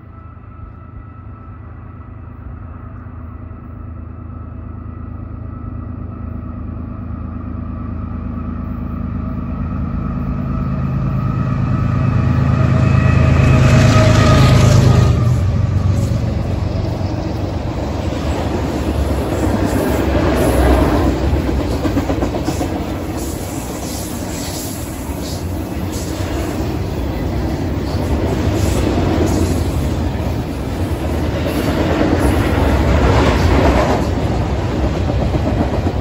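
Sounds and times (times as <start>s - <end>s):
locomotive engine rumble: 0.0s - 36.0s
steel wheels on rails: 8.5s - 36.0s.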